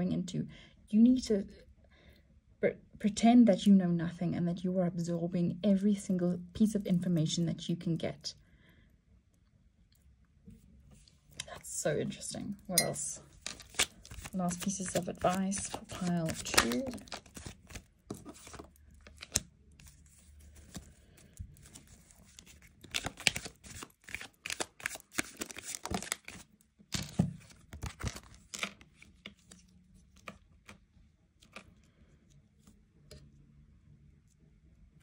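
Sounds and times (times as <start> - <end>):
cards being shuffled: 13.3 - 30.8, 31.4 - 31.8.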